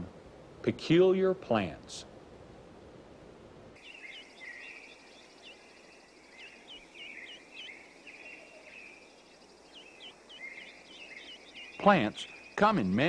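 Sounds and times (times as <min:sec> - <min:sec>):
birds chirping: 0:03.8 - 0:13.0
high insect trill: 0:03.8 - 0:13.0.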